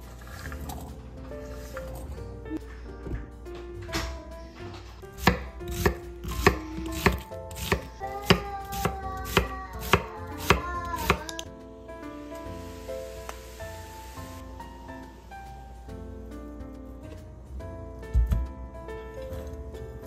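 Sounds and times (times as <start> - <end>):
soft background music: 0.0 - 20.0
knife chopping on wooden board: 5.2 - 11.4.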